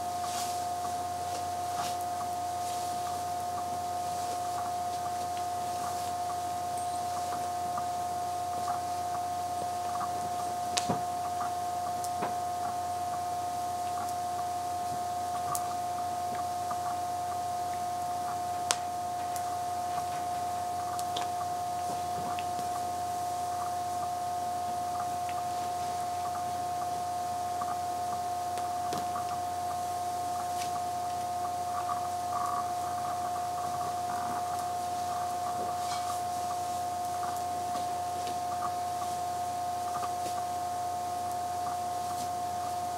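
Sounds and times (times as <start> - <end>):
steady high-pitched hum: 0.0 - 42.9.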